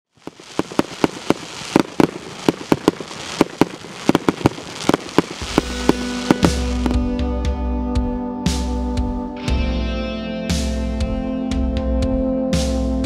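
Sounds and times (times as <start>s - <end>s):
crackling hiss of fireworks: 0.0s - 7.1s
fireworks bangs: 0.1s - 7.1s.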